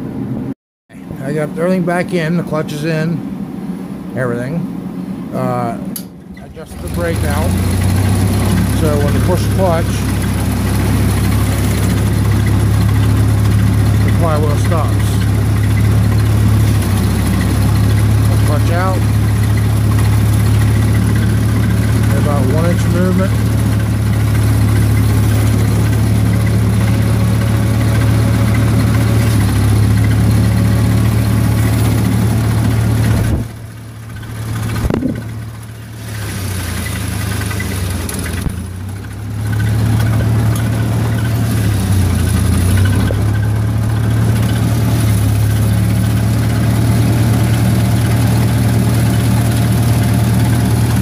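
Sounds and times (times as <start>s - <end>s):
tractor engine idling: 4.8s - 51.0s.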